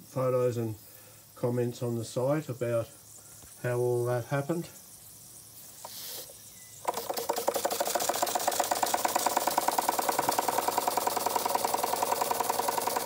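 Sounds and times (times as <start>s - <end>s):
toy steam engine chuffing: 5.8s - 13.0s.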